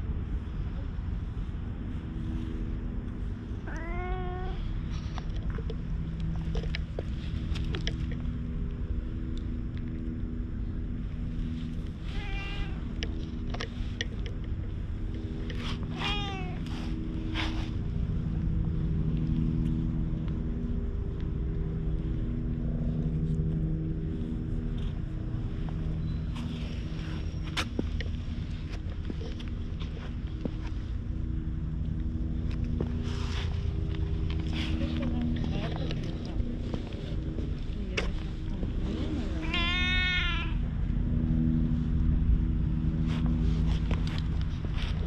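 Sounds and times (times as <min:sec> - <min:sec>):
steady low rumble: 0:00.0 - 0:45.0
cat meowing: 0:03.7 - 0:04.6, 0:12.1 - 0:12.9, 0:15.9 - 0:16.7, 0:39.4 - 0:40.6.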